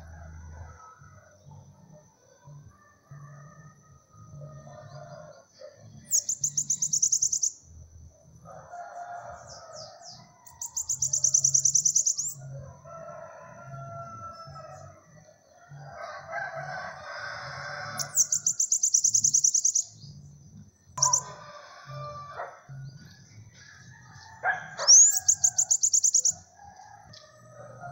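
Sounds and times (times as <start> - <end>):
bird singing high-pitched notes: 6.0 - 7.7, 9.8 - 12.4, 17.9 - 20.2, 21.0 - 21.4, 24.8 - 26.5.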